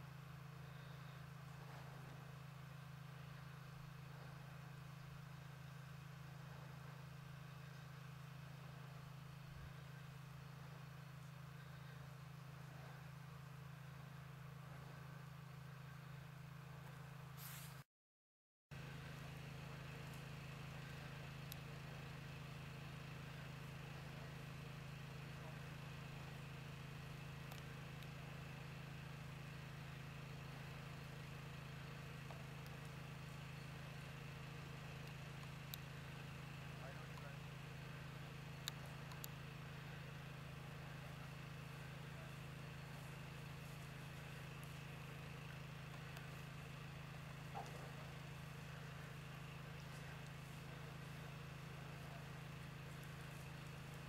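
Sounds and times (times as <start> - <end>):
faint low hum: 0.0 - 17.6, 18.8 - 54.0
faint clicks: 38.6 - 39.4.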